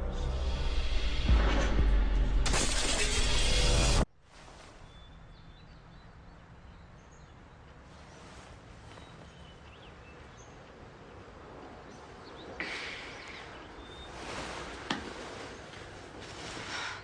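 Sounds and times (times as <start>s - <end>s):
faint bird chirps: 11.9s - 14.6s.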